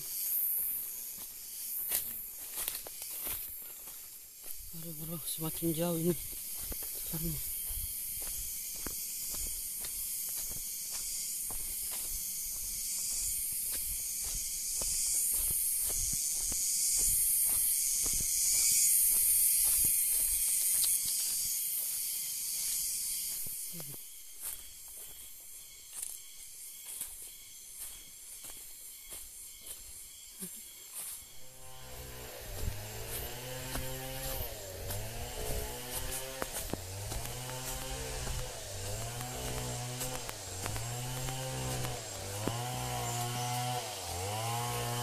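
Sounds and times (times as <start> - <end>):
hissing insect drone: 0.0 - 45.0
faint regular ticks: 14.4 - 24.0, 36.1 - 42.4.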